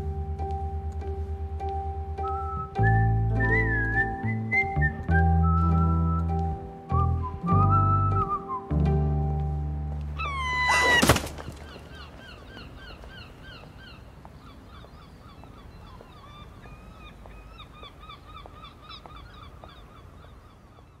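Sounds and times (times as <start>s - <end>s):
flock of birds calling: 10.2s - 21.0s.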